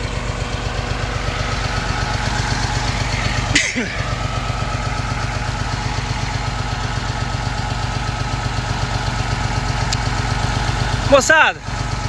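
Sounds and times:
tractor diesel engines idling: 0:00.0 - 0:12.0.

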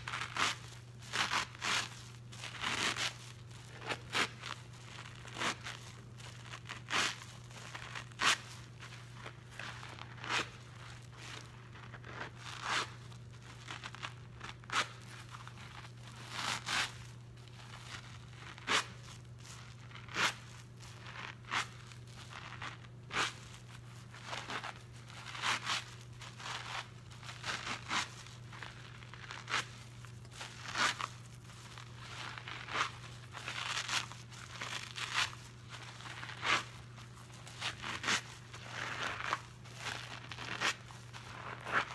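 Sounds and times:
wet sponge squelching: 0:17.6 - 0:41.9.

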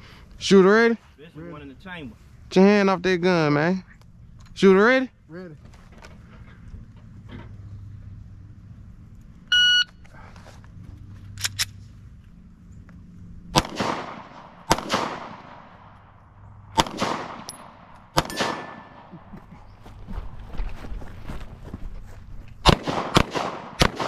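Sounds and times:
shot timer beep: 0:09.5 - 0:09.9
echoing pistol shots: 0:13.5 - 0:16.0, 0:16.6 - 0:19.1, 0:22.6 - 0:24.0.

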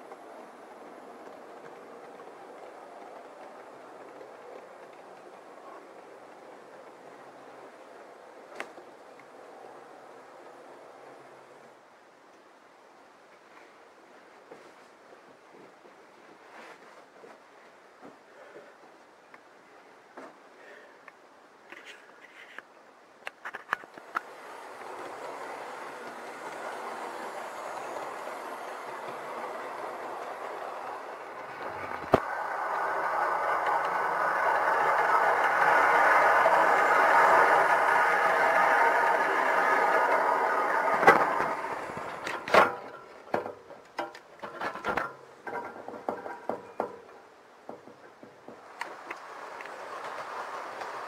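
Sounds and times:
model train running on track: 0:00.0 - 0:13.2, 0:23.5 - 0:51.0.

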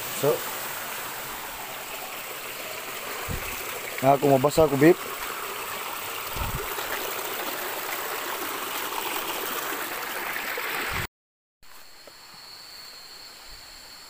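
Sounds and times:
stream running over rocks: 0:00.0 - 0:11.1.

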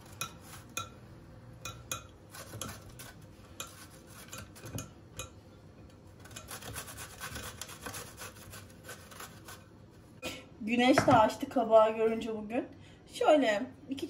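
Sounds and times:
vegetable rasping on grater: 0:02.3 - 0:04.8, 0:06.2 - 0:09.6.

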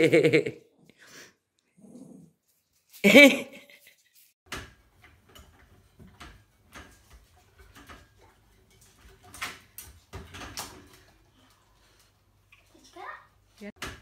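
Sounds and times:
pet gate knocking and rattling: 0:04.5 - 0:11.3.

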